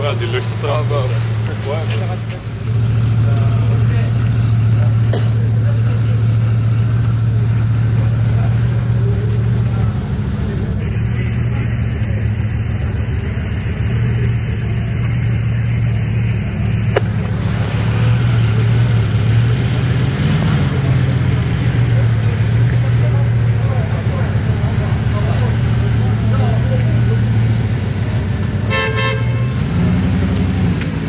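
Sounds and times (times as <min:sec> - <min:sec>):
car engine idling: 0:00.0 - 0:31.0.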